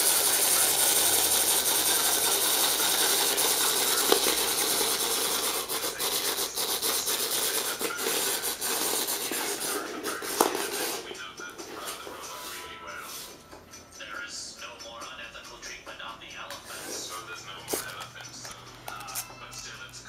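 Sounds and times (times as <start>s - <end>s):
wind-up toy whirring: 0.0s - 11.2s.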